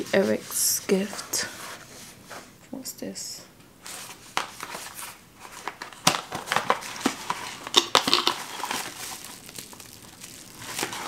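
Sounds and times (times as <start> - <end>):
packaging crinkling and rustling: 3.8 - 11.0.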